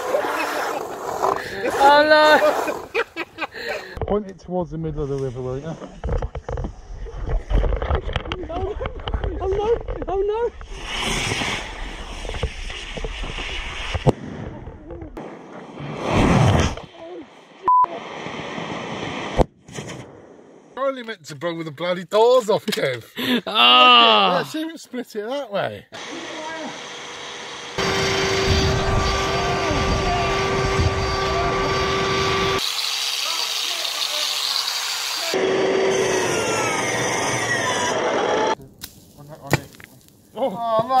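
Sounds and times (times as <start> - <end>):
crackling sharp pops: 8.9 - 16.9, 18.2 - 20.8, 38.7 - 40.4
small motor humming: 26.0 - 38.6
loud rushing blast: 27.8 - 32.6
wind rumble on microphone: 28.3 - 32.5
hard crack: 38.7 - 41.0.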